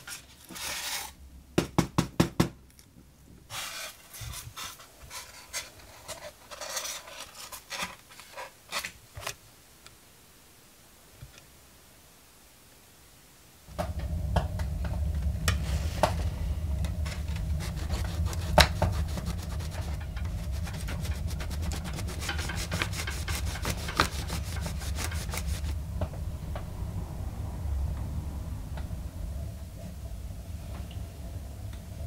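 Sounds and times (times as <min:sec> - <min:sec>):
stencil sheet rubbed by hand: 0:00.0 - 0:01.1, 0:03.5 - 0:08.9, 0:17.1 - 0:25.8
low hum: 0:12.9 - 0:32.0
clicks and crackles: 0:13.7 - 0:26.7.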